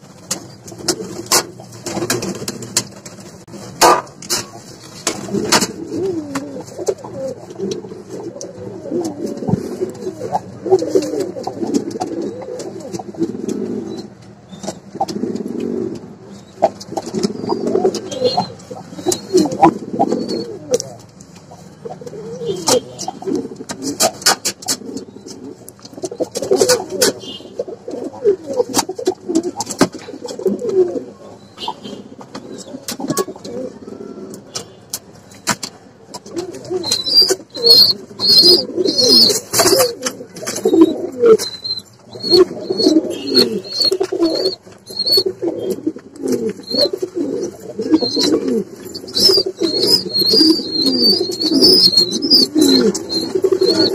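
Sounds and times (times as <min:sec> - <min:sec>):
sharp clicks and knocks: 0:00.0 - 0:19.8, 0:20.8 - 0:27.2, 0:34.4 - 0:37.8
pigeons cooing: 0:00.0 - 0:53.9
high repeated chirping: 0:36.8 - 0:39.4, 0:40.7 - 0:45.3, 0:47.9 - 0:53.9.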